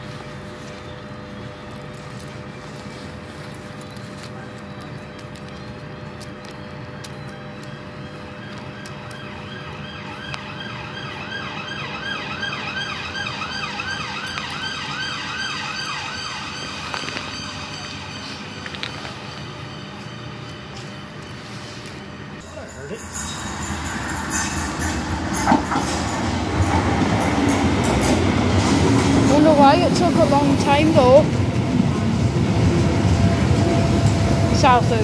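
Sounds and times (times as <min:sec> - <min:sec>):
steady low hum: 0:00.0 - 0:35.0
siren yelping: 0:07.8 - 0:20.0.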